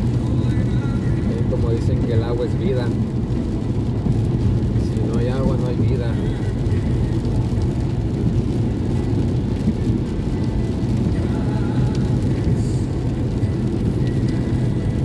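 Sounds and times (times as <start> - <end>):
wet tyre and road noise: 0.0 - 15.0.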